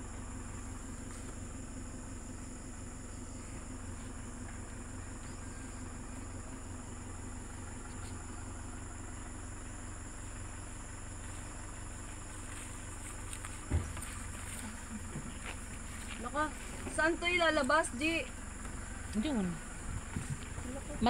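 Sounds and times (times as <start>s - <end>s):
pickup truck engine rumbling: 0.0s - 21.0s
thump: 13.7s - 14.1s.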